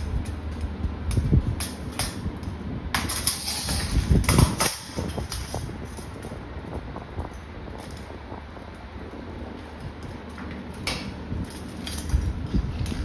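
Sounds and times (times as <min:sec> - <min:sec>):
metal clinking and scraping: 0:01.4 - 0:06.4, 0:09.8 - 0:13.0.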